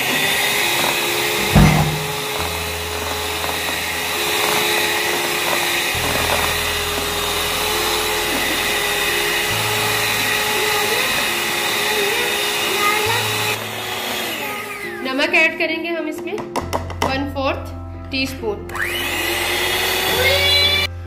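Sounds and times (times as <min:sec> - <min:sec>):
electric hand mixer whining: 0:00.0 - 0:15.5, 0:18.7 - 0:21.0
thump: 0:01.4 - 0:02.5.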